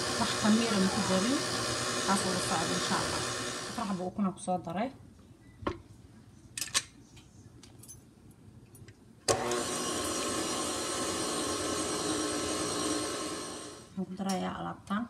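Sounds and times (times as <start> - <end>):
stand mixer motor whining: 0.0 - 4.0, 9.3 - 13.9.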